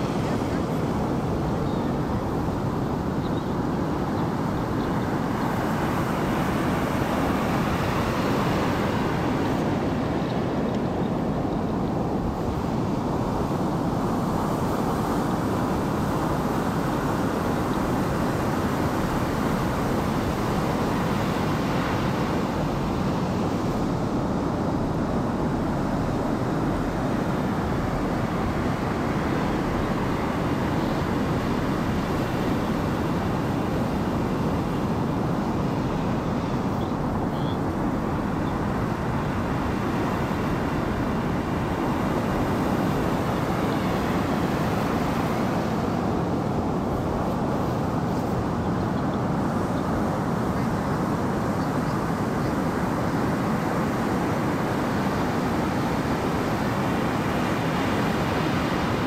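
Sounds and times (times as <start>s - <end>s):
faint high chirp: 36.7s - 37.6s.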